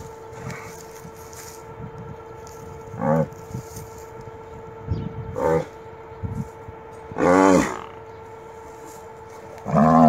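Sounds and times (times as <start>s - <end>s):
calf bellowing: 2.9s - 3.5s, 7.1s - 8.0s, 9.5s - 10.0s.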